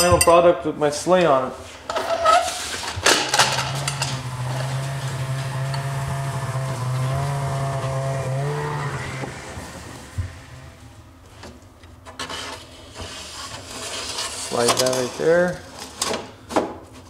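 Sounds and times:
metallic clatter: 3.1 - 4.8
snowmobile engine passing by: 3.5 - 11.1.

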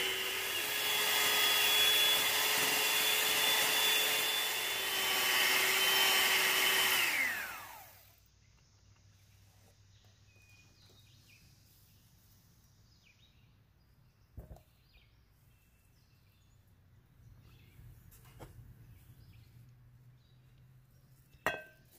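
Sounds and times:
electric hand mixer whine: 0.0 - 8.2.

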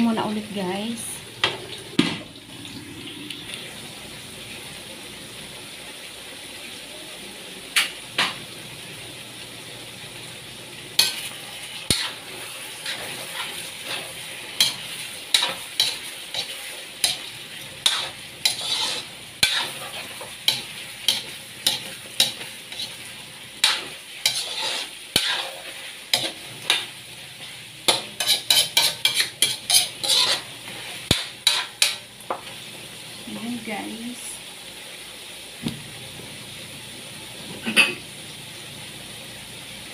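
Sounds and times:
chicken sizzling in a wok: 0.0 - 39.9
metal ladle scraping a wok: 11.9 - 23.0, 23.6 - 26.8, 27.9 - 32.0.

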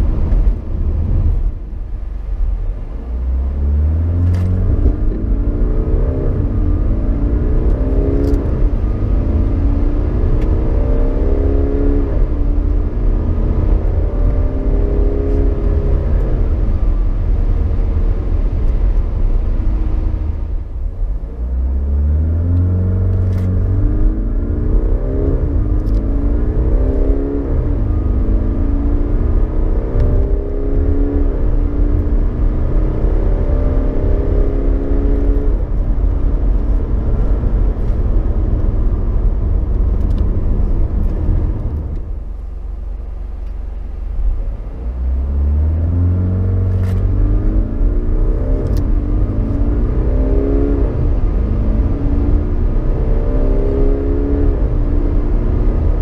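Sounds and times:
diesel engine accelerating: 0.0 - 56.0.

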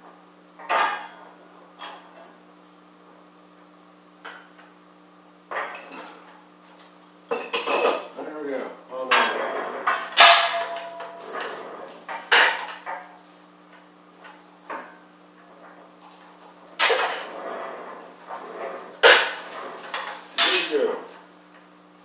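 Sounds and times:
loud metal clank with ring: 10.2 - 11.2.

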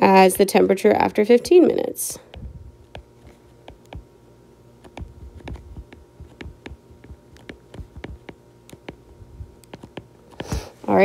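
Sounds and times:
stylus tapping on glass screen: 4.9 - 9.0.

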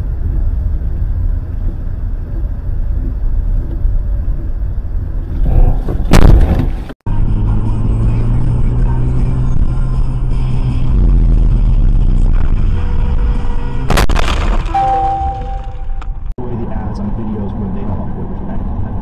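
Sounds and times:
car engine and road rumble: 0.0 - 19.0
vehicle collision impact: 5.3 - 7.0.

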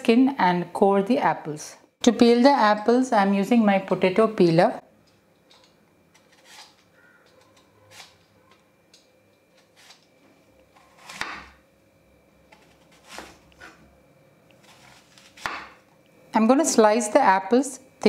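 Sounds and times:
peeler scraping apple skin: 6.1 - 8.3
knife cutting apple on wooden board: 6.1 - 8.5, 10.7 - 11.6, 12.5 - 13.8, 14.6 - 15.8.

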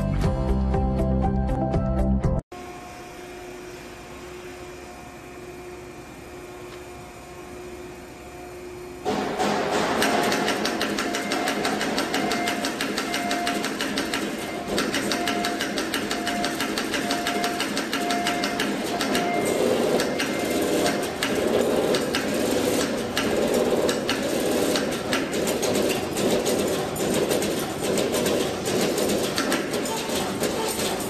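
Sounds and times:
machine clattering: 9.1 - 31.0.

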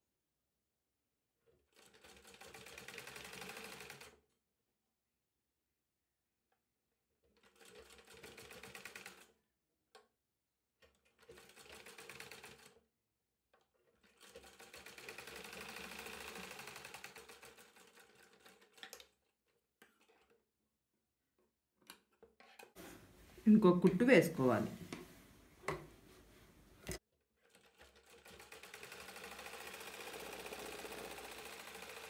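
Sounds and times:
sewing machine stitching: 1.5 - 4.2, 7.2 - 9.4, 10.8 - 12.8, 13.7 - 20.4, 27.4 - 32.0.

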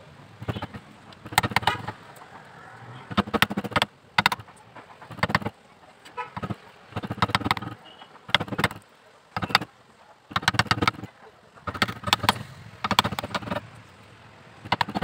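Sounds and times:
chisel knocking on wood: 0.4 - 2.0, 3.1 - 4.5, 5.1 - 5.5, 6.4 - 8.8, 9.4 - 9.7, 10.3 - 11.1, 11.7 - 13.6, 14.6 - 15.0.

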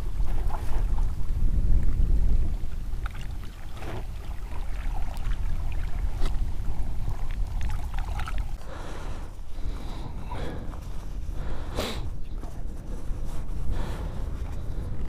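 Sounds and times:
small waves lapping on rocks: 0.0 - 10.6
wind rumbling on microphone: 0.0 - 15.0.

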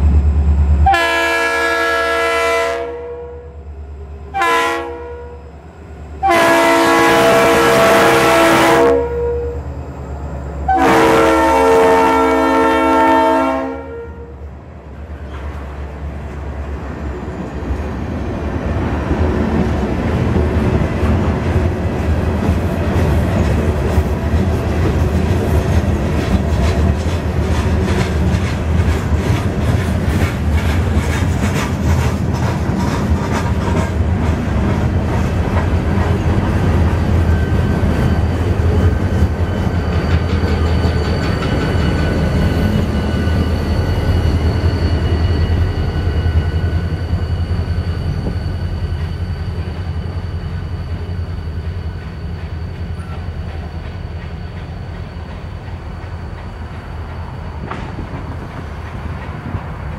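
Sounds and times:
freight train rumble: 0.0 - 59.9
locomotive high whine: 0.0 - 59.9
wheel clatter over rail joints: 21.2 - 43.4.

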